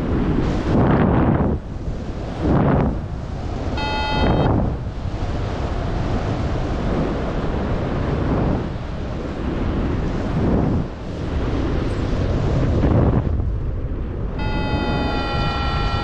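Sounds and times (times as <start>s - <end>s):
wind buffeting microphone: 0.0s - 16.0s
electronic beep: 3.8s - 4.5s, 14.4s - 16.0s.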